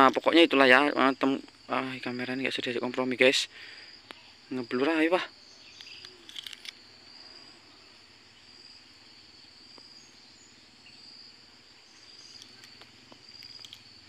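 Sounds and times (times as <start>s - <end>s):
high-pitched insect chirring: 0.0s - 14.0s
faint clicks: 12.3s - 13.9s.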